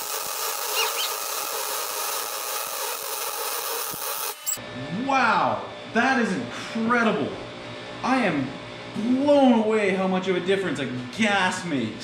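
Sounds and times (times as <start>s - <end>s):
welder arc hissing: 0.0s - 4.6s.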